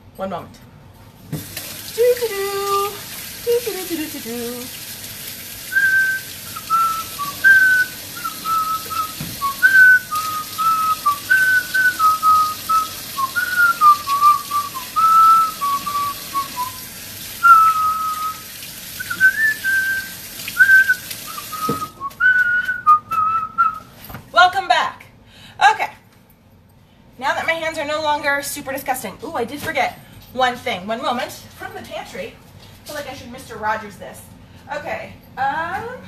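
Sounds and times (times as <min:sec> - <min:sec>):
running tap water: 0:01.2 - 0:23.8
person whistling a tune: 0:05.7 - 0:18.4, 0:19.0 - 0:24.0.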